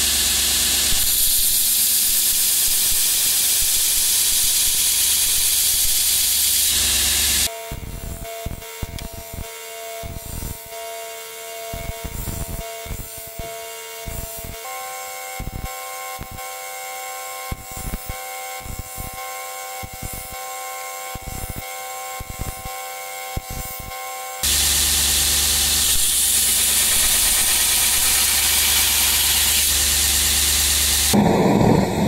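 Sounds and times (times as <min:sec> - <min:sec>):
belt grinder whining: 0:00.0 - 0:09.2, 0:23.4 - 0:32.0
blade scraping on grinding belt: 0:24.4 - 0:31.2.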